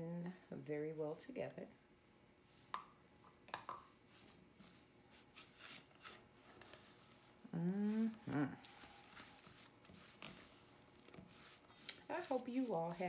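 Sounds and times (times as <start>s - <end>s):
person speaking: 7.5s - 8.8s, 12.0s - 13.0s
spatula scraping metal bowl: 8.0s - 13.0s.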